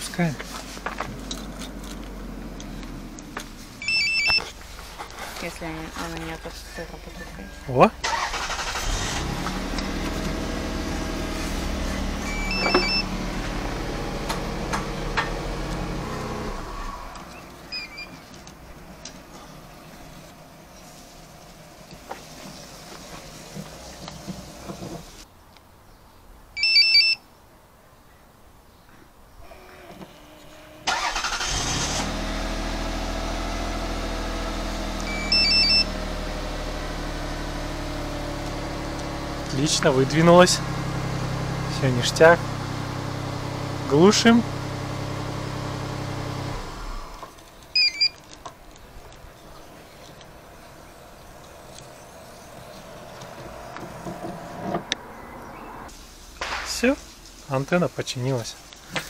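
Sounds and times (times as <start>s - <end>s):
car engine starting and idling: 0.0s - 25.3s, 29.5s - 58.9s
antenna motor humming: 8.3s - 25.2s
short electronic beep: 12.2s - 13.1s, 35.1s - 35.9s, 47.8s - 48.2s.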